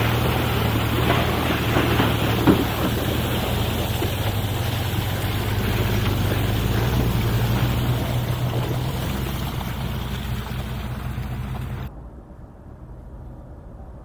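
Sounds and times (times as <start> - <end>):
heavy vehicle engines under load: 0.0 - 11.9.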